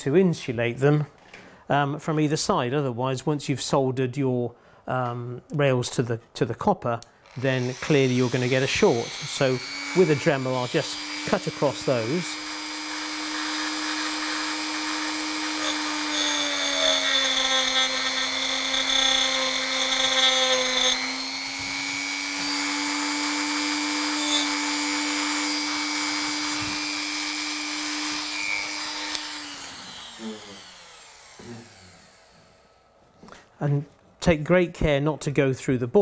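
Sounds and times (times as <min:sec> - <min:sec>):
rotary tool cutting metal: 0:07.3 - 0:32.6
motor winding down: 0:07.3 - 0:32.8.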